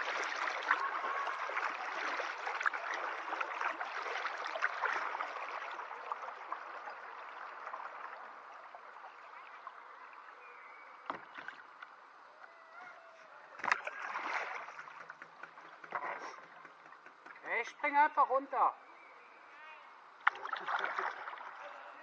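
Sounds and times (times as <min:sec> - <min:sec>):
water gurgling and dripping: 0:00.0 - 0:10.4
small splashes: 0:00.0 - 0:11.9, 0:13.5 - 0:17.6, 0:20.2 - 0:22.0.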